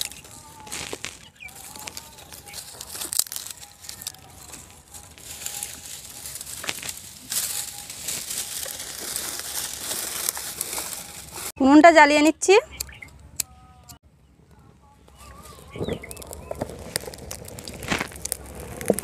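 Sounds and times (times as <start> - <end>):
twigs crackling and snapping: 0.0 - 11.6, 12.7 - 13.5, 15.0 - 19.0.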